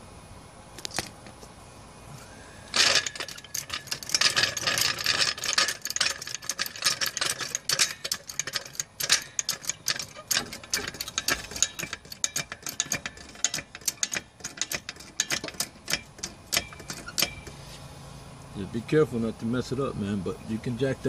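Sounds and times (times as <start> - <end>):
floor jack clicking and rattling: 2.8 - 17.5.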